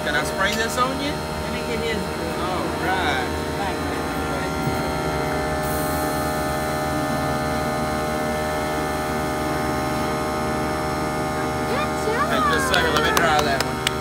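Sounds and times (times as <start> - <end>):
air compressor humming: 0.0 - 14.0
airbrush hissing: 4.1 - 8.1.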